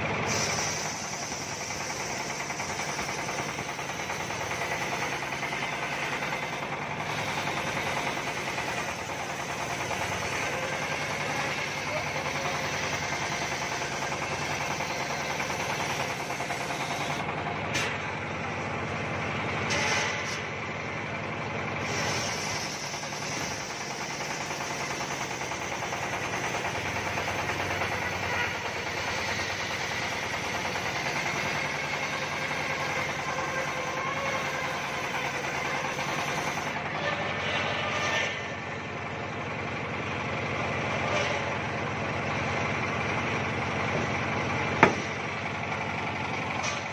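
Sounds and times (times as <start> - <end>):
circular saw cutting wood: 0.2 - 18.0, 21.8 - 38.7, 40.8 - 41.7.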